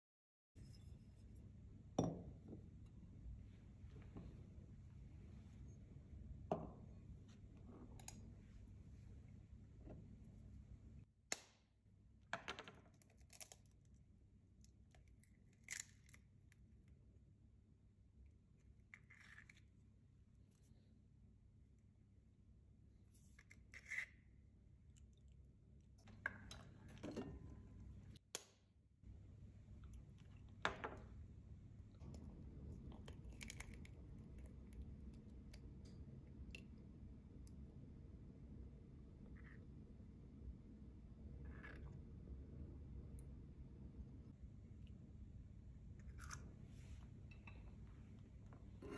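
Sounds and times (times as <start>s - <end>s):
low steady hum: 0.6s - 11.1s, 24.2s - 48.9s.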